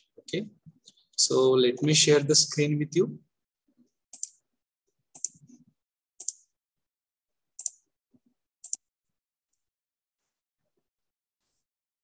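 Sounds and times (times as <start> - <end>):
computer mouse clicking: 4.1 - 4.4, 5.2 - 5.5, 6.2 - 6.4, 7.6 - 7.8, 8.6 - 8.9.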